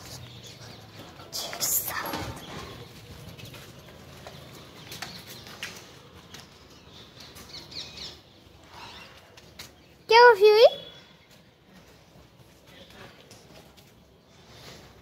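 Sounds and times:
paws clicking and scuffing: 0:00.0 - 0:08.1.

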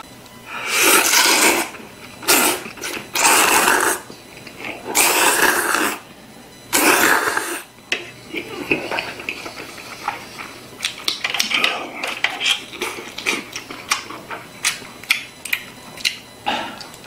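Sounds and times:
man slurping noodles: 0:00.5 - 0:04.1, 0:04.7 - 0:06.0, 0:06.7 - 0:07.7.

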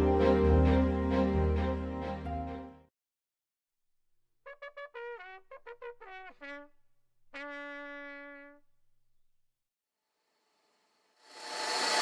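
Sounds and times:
trumpet fanfare: 0:04.5 - 0:06.7.

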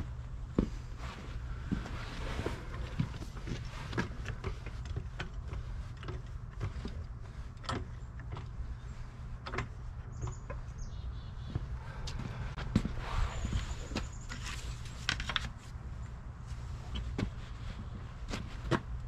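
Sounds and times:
steady low rumble: 0:00.0 - 0:19.0
faint high bird chirp: 0:10.1 - 0:12.0.

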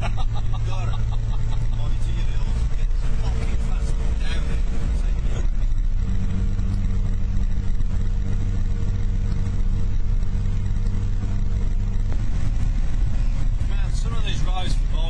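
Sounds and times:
car engine hum: 0:00.0 - 0:15.0
road rumble: 0:00.0 - 0:15.0.

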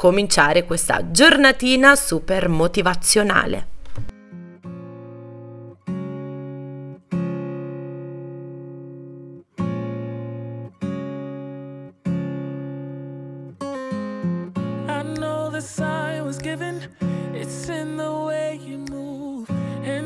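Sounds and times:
acoustic guitar strumming chords: 0:04.1 - 0:20.0.

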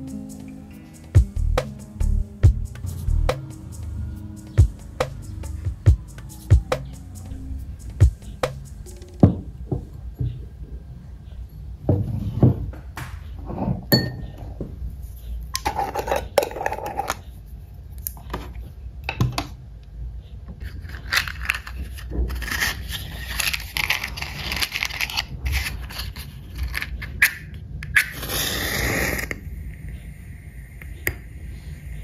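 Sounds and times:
matchbox rustling and sliding: 0:20.6 - 0:29.4.

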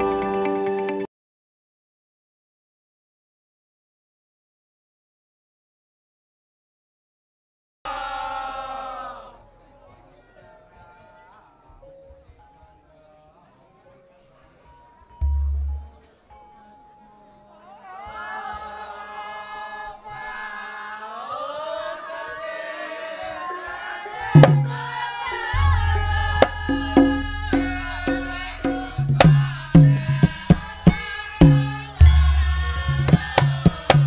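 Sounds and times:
gliding gamelan melody: 0:07.9 - 0:17.8, 0:24.0 - 0:34.0
deep steady bass: 0:15.2 - 0:16.0, 0:25.5 - 0:34.0
hand drum strokes: 0:24.4 - 0:34.0.

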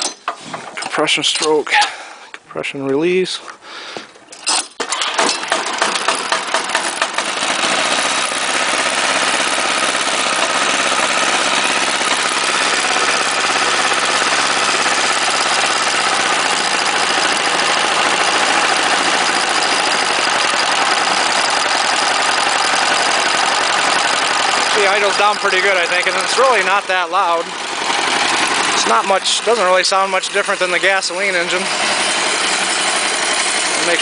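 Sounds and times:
diesel engine starting and running: 0:04.4 - 0:34.0.

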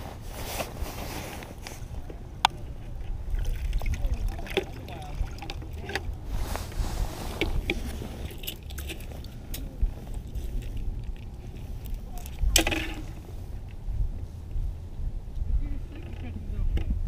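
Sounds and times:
low steady rumble: 0:00.0 - 0:17.0
loud scrape: 0:06.3 - 0:08.2.

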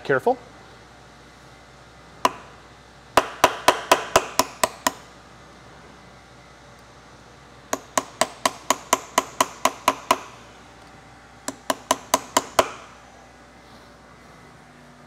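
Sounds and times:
hammer tapping chisel on metal: 0:02.2 - 0:02.5, 0:03.2 - 0:05.1, 0:07.7 - 0:10.4, 0:11.4 - 0:12.9.

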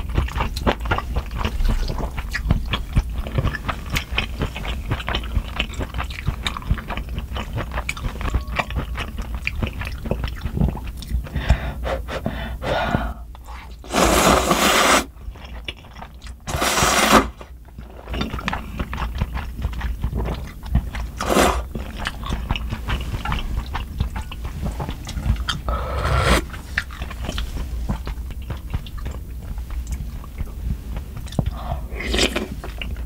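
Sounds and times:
wet chewing: 0:00.0 - 0:12.2, 0:14.6 - 0:33.0
sipping broth: 0:11.5 - 0:15.1, 0:21.2 - 0:21.7, 0:25.4 - 0:27.0
slurping noodles: 0:13.7 - 0:15.1, 0:16.5 - 0:17.4, 0:21.2 - 0:21.7, 0:25.6 - 0:26.9.

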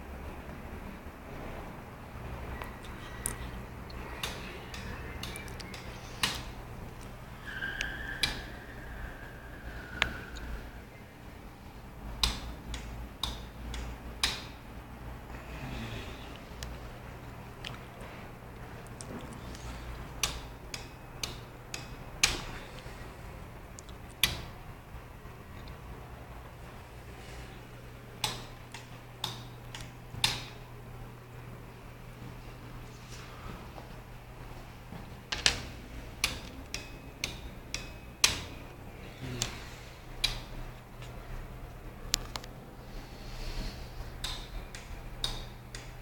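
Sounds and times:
low steady hum: 0:00.0 - 0:46.0
relays clicking: 0:02.5 - 0:15.0, 0:17.5 - 0:24.6, 0:25.3 - 0:31.5, 0:35.2 - 0:46.0
sharp clicks: 0:02.6 - 0:08.6.

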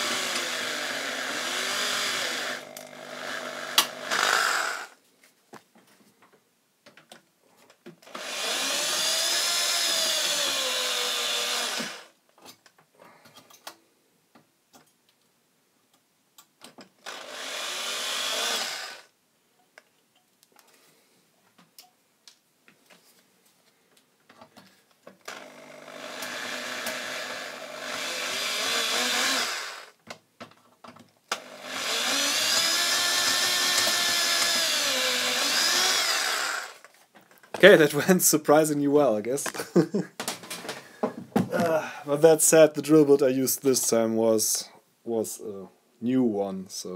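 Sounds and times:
electric drill whining: 0:00.0 - 0:05.0, 0:08.0 - 0:12.2, 0:17.0 - 0:19.1, 0:25.2 - 0:30.0, 0:31.3 - 0:36.9.

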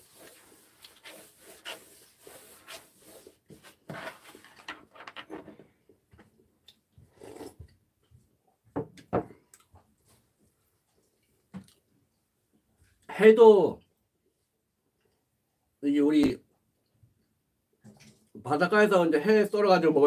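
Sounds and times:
cloth rubbing on wooden table: 0:00.0 - 0:04.5.

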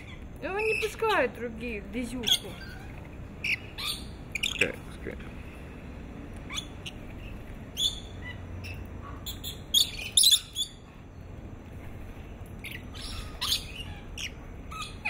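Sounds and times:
lorikeets screeching: 0:00.0 - 0:05.0, 0:06.4 - 0:10.9, 0:12.5 - 0:15.0.

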